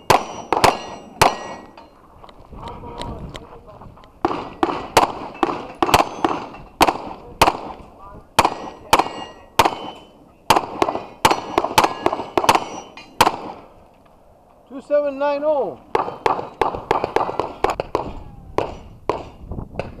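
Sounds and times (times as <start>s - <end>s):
steel targets ringing: 0.0s - 2.0s, 5.3s - 6.8s, 8.4s - 10.2s, 10.8s - 13.3s
rapid pistol fire: 4.2s - 7.8s, 8.4s - 13.6s, 16.0s - 19.3s.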